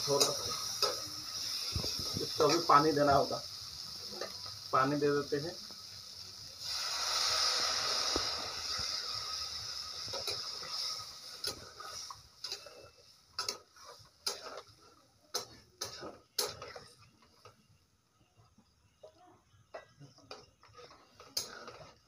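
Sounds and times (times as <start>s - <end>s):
water sizzling in hot oil: 0.0s - 17.7s, 20.2s - 22.0s
metal spatula scraping a pan: 6.7s - 17.6s, 20.1s - 22.0s.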